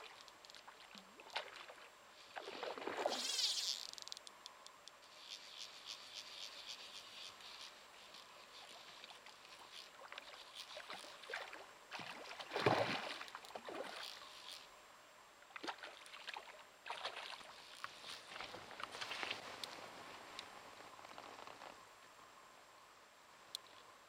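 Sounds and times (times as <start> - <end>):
fish splashing in water: 10.0 - 14.1.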